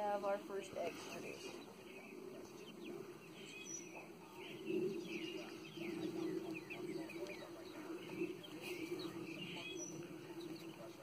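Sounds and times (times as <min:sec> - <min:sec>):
steady low hum: 0:00.0 - 0:11.0
chicks peeping and chirping: 0:00.5 - 0:11.0.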